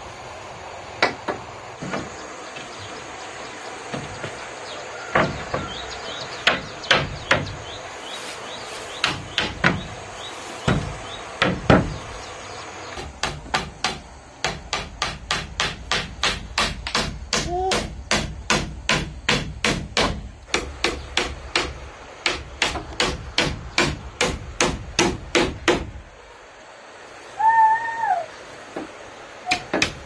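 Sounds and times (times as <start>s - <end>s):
hammer hitting nail into wood: 13.0s - 25.9s.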